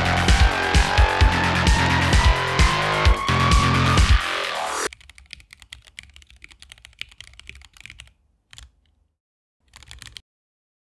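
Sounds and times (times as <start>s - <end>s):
mechanical keyboard typing: 4.9s - 9.0s, 9.6s - 10.2s.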